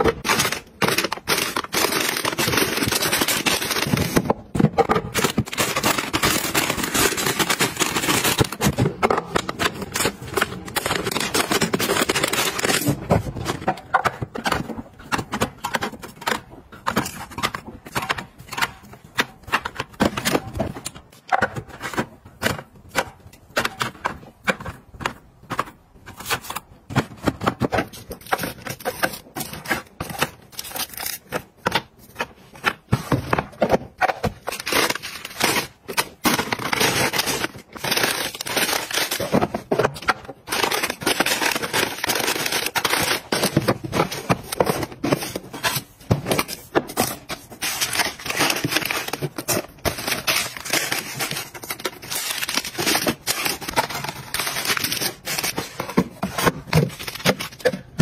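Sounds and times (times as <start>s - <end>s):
plastic bags crinkling: 0.0s - 18.6s, 34.0s - 58.0s.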